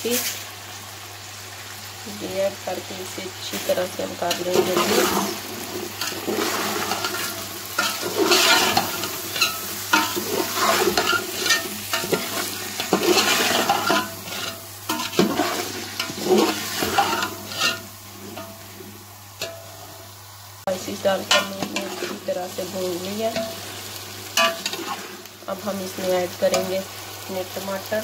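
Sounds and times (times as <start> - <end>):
frying sizzle: 0.0 - 28.0
spatula scraping metal pot: 6.0 - 18.5.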